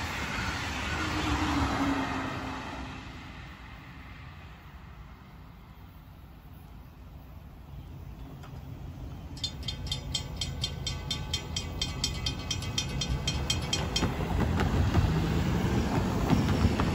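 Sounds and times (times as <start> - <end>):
railroad crossing bell ringing: 8.1 - 15.4.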